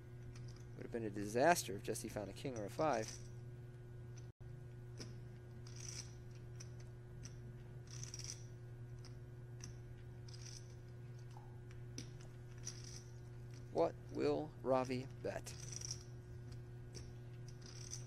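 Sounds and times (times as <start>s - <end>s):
low steady hum: 0.0s - 18.0s
poker chips clicking: 17.0s - 18.0s.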